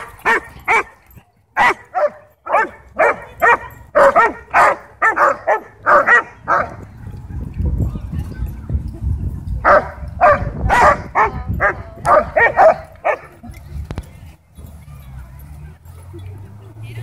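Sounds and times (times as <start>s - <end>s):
dogs barking: 0.0s - 1.0s, 1.6s - 6.9s, 9.6s - 13.4s.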